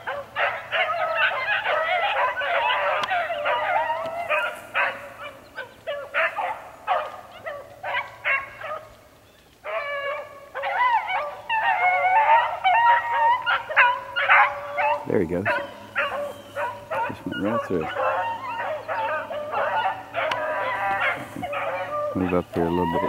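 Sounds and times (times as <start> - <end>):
pack of dogs baying: 0.0 - 23.0.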